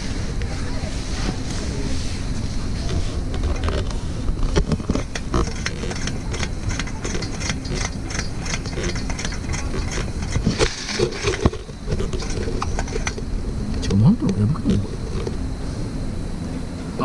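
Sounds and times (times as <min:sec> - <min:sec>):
steady background hiss: 0:00.0 - 0:17.0
clicks and knocks on metal lantern: 0:03.3 - 0:13.3.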